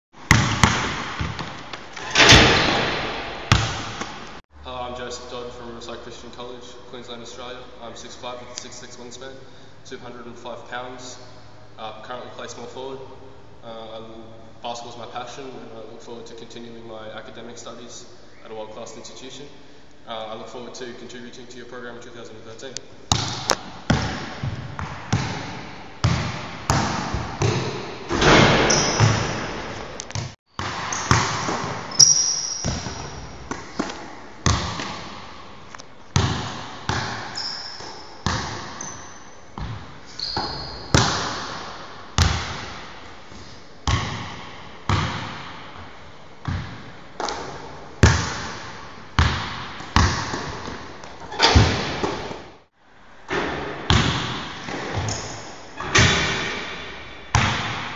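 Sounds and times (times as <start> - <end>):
basketball bouncing on hardwood floor: 0.3 - 1.6, 2.5 - 4.2, 23.1 - 32.0, 32.6 - 35.1, 36.2 - 38.8, 39.6 - 39.8, 40.4 - 41.5, 42.2 - 42.7, 43.9 - 45.4, 46.4 - 47.4, 49.2 - 50.8, 53.4 - 55.2, 57.3 - 57.9
sneaker squeaks: 28.2 - 29.4, 30.2 - 34.8, 37.2 - 41.2, 54.9 - 56.1.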